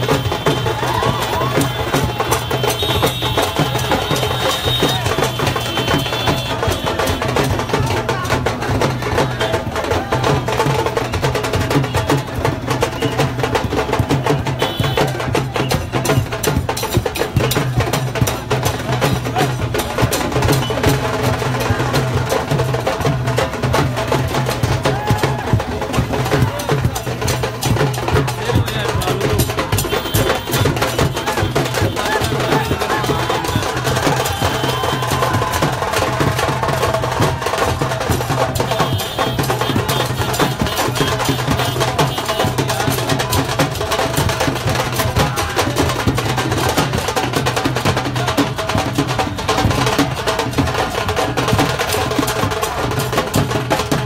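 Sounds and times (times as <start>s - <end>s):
rapid drum strokes: 0.0s - 54.0s.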